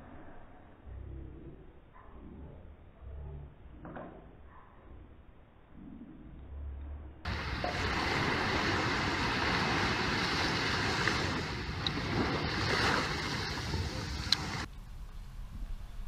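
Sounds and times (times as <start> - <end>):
surf breaking on beach: 7.3 - 14.7
wind noise on microphone: 7.3 - 16.0.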